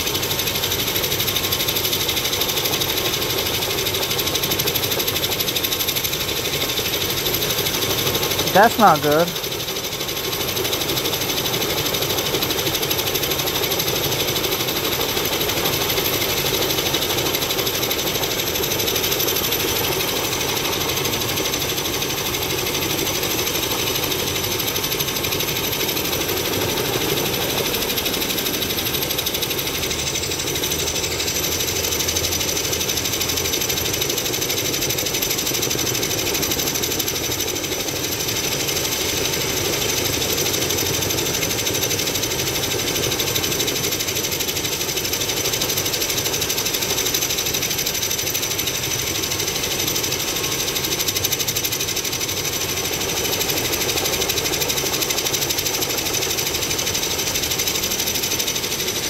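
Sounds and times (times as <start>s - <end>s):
helicopter rotor chop: 4.7s - 9.5s, 36.1s - 59.0s.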